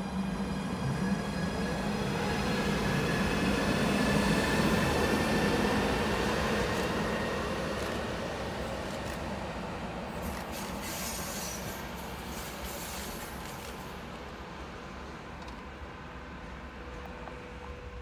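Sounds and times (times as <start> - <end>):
electric locomotive whine and hum: 0.0 - 18.0.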